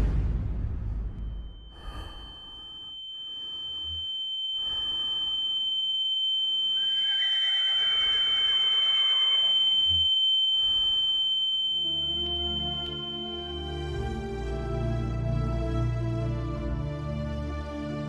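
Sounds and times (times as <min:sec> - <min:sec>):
high-pitched ringing tone: 0:01.1 - 0:16.4
horse whinnying: 0:07.0 - 0:09.4.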